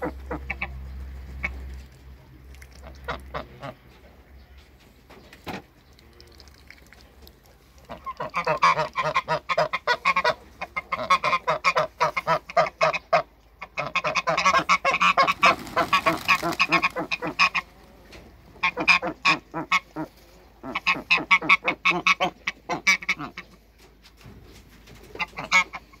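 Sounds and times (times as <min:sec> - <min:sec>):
geese honking: 0:00.0 - 0:01.8, 0:02.8 - 0:03.9, 0:07.8 - 0:23.6, 0:25.1 - 0:26.0.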